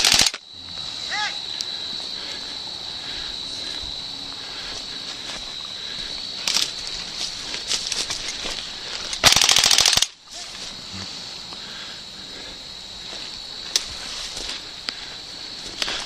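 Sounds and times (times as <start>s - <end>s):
airsoft gun full-auto burst: 0.0s - 0.4s, 9.2s - 10.2s.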